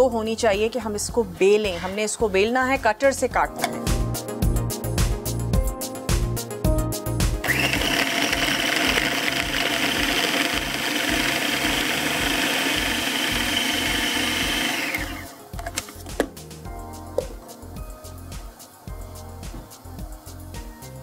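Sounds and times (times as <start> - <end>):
electric food chopper running: 7.4 - 15.4.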